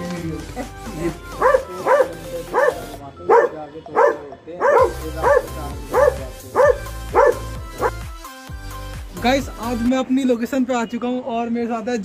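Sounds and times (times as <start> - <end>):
dogs barking: 0.6 - 8.0.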